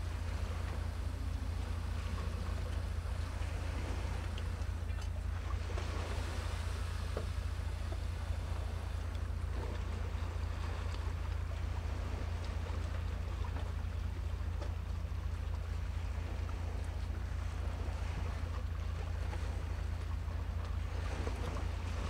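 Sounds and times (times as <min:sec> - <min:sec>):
wind and sea hiss: 0:00.0 - 0:22.0
wind rumble on microphone: 0:00.0 - 0:22.0
faint ticks: 0:04.1 - 0:05.2, 0:10.7 - 0:11.5.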